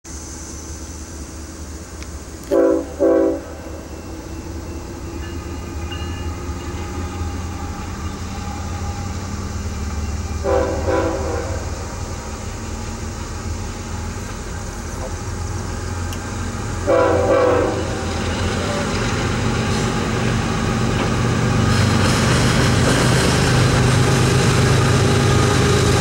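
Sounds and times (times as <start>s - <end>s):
train air horn blasts: 2.5s - 4.2s, 10.3s - 12.2s, 16.7s - 19.0s.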